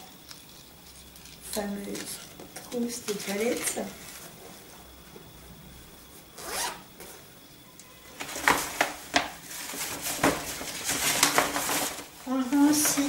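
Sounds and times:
zipper rasping: 6.4 - 6.8.

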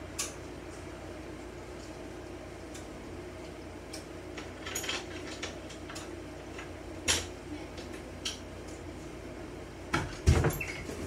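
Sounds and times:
low fan hum: 0.0 - 11.0.

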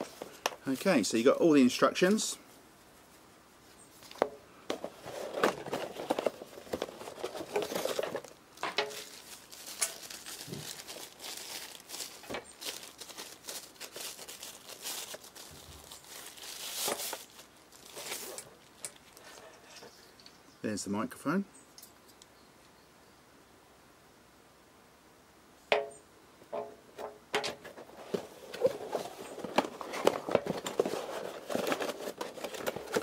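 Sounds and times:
plastic packaging crinkling: 4.8 - 19.4, 27.8 - 33.0.

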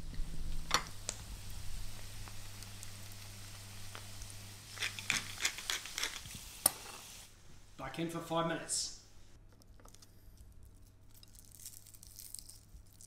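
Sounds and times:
steady low hum: 0.0 - 5.7
fat sizzling and crackling: 0.0 - 7.4, 11.0 - 13.0.

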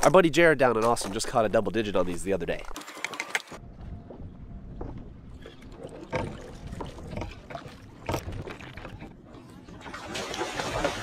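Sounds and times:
water sloshing and splashing: 0.0 - 3.6, 4.8 - 11.0
steady low rumble: 3.6 - 7.5.

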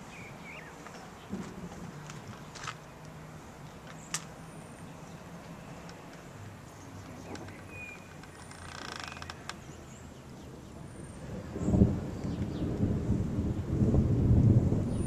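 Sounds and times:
brief creak: 7.0 - 9.6.

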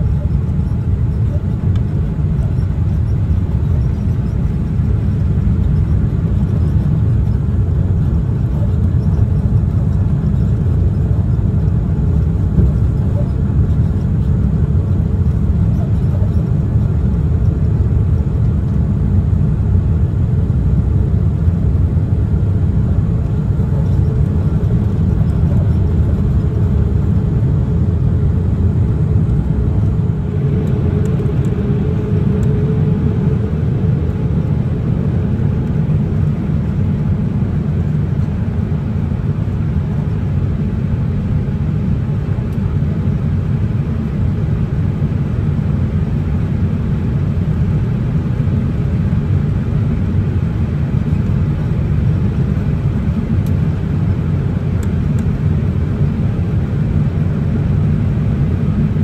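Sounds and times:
airliner cabin engine rumble: 0.0 - 59.0.

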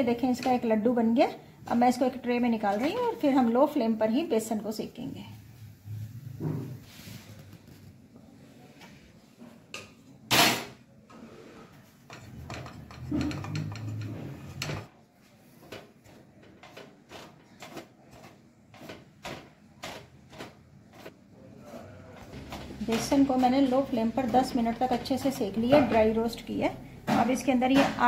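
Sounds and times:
wooden spatula scraping pan: 11.2 - 14.9.

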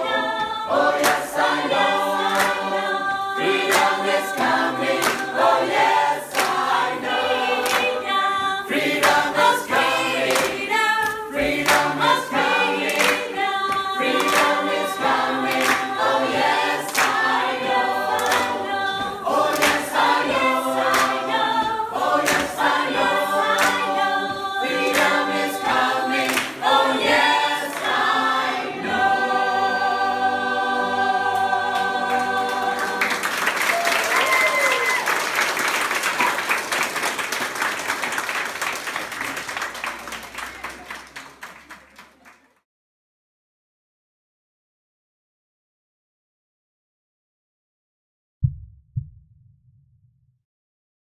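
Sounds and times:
mixed choir singing unaccompanied: 0.0 - 33.8
hand claps: 0.7 - 28.0, 32.1 - 42.5.

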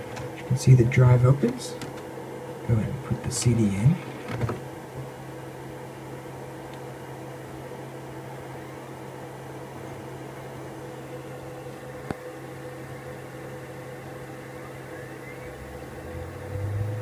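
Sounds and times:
computer humming: 0.0 - 17.0
cd drive spinning up: 3.1 - 5.9, 11.9 - 17.0
faint rising whine: 9.8 - 17.0
deeper hum: 12.8 - 17.0.

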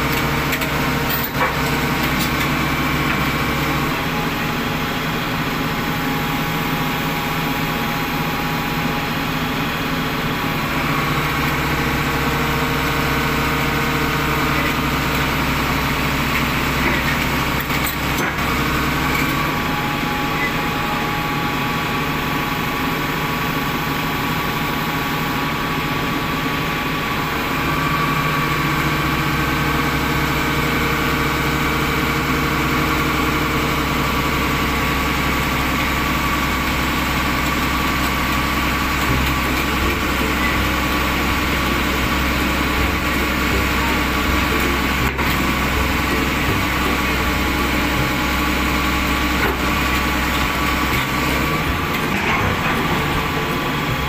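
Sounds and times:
heavy diesel engine idling: 0.0 - 54.0.

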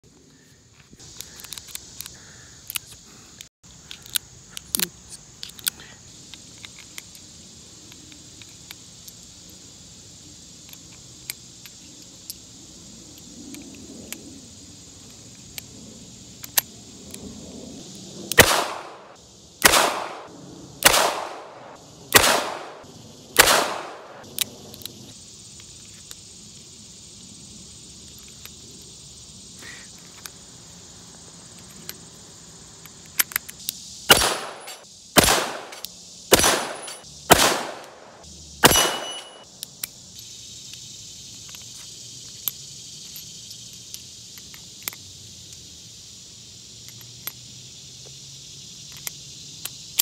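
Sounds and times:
revolver gunshots: 18.4 - 22.8, 23.4 - 24.2, 34.1 - 39.4
cartridges clicking into revolver: 19.6 - 22.8, 23.4 - 25.0, 32.8 - 40.0.

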